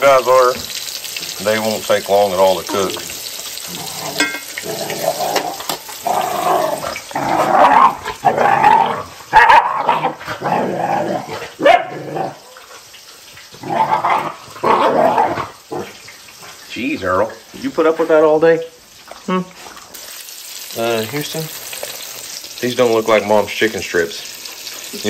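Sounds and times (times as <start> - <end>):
dogs growling and barking: 3.6 - 16.6.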